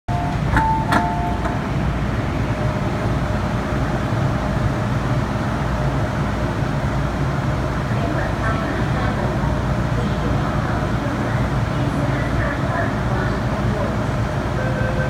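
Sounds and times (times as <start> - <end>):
two-pitch door warning beeps: 0.1 - 1.6
train rumble: 0.1 - 15.0.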